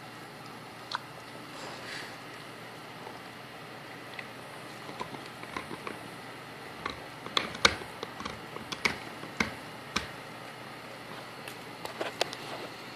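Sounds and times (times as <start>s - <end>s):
dog teeth clicking on chew bone: 4.2s - 6.0s, 6.8s - 10.2s.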